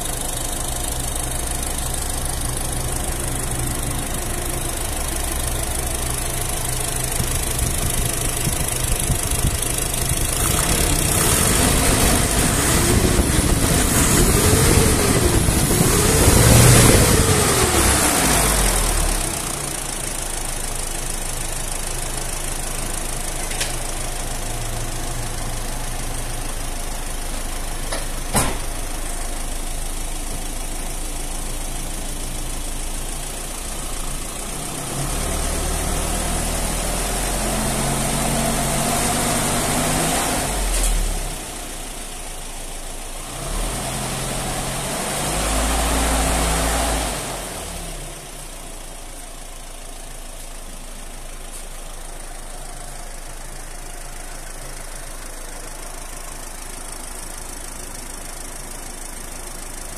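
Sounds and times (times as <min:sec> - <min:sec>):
engine idling and revving: 0:00.0 - 0:59.9.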